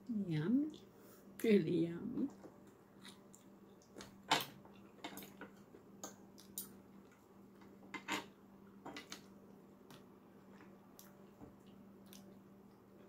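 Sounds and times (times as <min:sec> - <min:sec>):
person chewing: 0:02.9 - 0:05.4.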